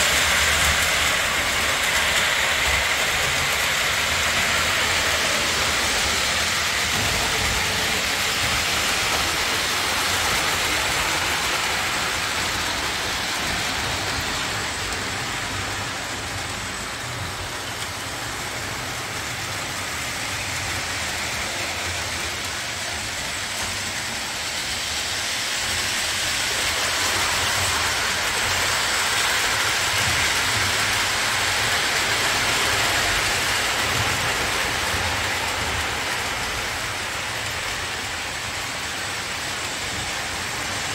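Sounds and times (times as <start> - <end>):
model train rumbling on track: 0.0 - 40.9.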